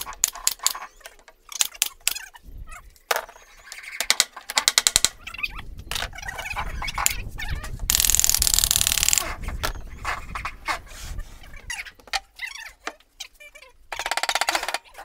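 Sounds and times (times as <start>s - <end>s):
wooden panels knocking: 4.0s - 5.2s.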